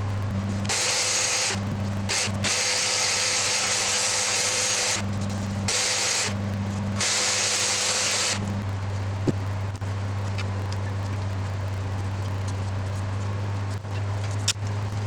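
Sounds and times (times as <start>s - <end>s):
orbital sander on wood: 0.0s - 9.4s
low steady hum: 0.0s - 15.0s.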